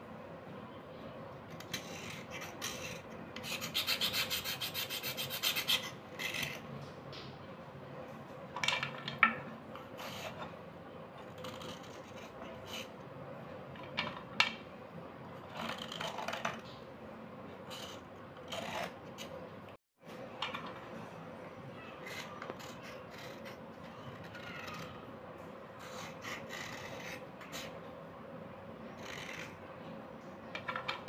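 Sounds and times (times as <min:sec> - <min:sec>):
knife scraping slate: 0:01.6 - 0:06.6, 0:17.7 - 0:19.3, 0:25.8 - 0:27.8.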